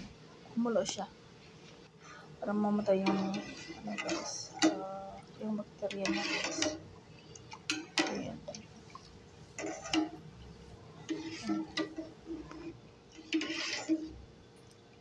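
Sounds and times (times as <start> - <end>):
metal spoon stirring in a pot: 2.6 - 14.8
spoon clinking and scraping pot: 3.0 - 4.8, 5.9 - 6.8, 7.6 - 8.6, 9.6 - 10.2, 11.0 - 14.2.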